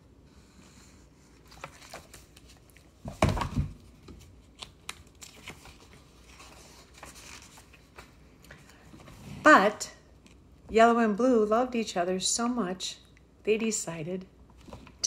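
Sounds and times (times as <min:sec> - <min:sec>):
paper rustling and crinkling: 0:00.8 - 0:09.3.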